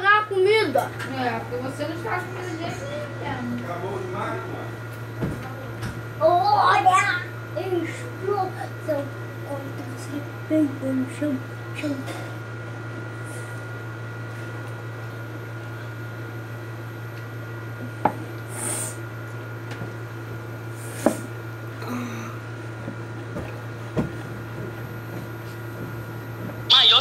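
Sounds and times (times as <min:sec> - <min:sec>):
faint high whine: 0:26.7 - 0:27.0.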